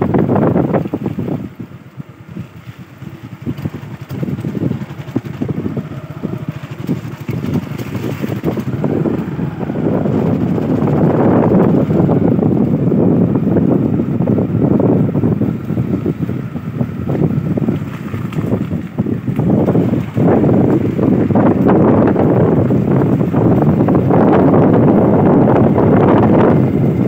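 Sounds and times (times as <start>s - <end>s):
vehicle running noise: 0.0s - 27.0s
wind buffeting microphone: 0.0s - 27.0s.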